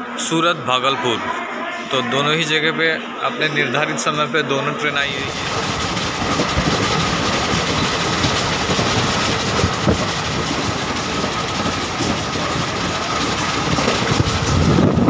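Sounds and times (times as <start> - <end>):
train wheels rumbling on rails: 5.0 - 15.0.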